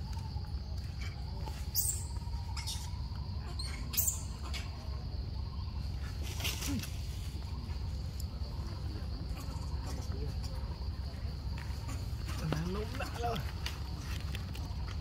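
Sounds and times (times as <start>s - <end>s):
high-pitched animal squeaks: 1.8s - 4.8s.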